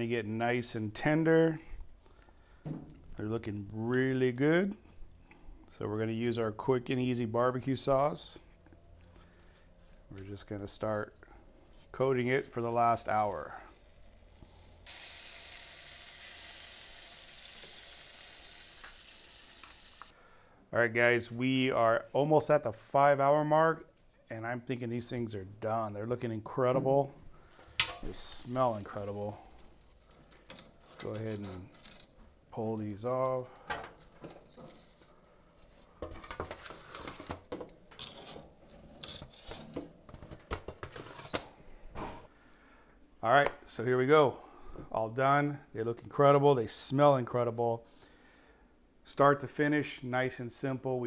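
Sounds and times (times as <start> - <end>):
sauce sizzling on hot grates: 13.2 - 20.1.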